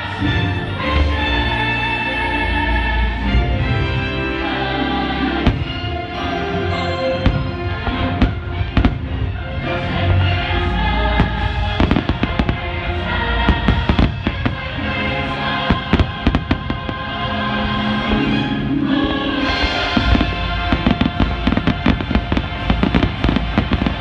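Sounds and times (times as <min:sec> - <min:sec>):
christmas music: 0:00.0 - 0:24.0
fireworks bursting: 0:05.4 - 0:18.3, 0:19.0 - 0:24.0.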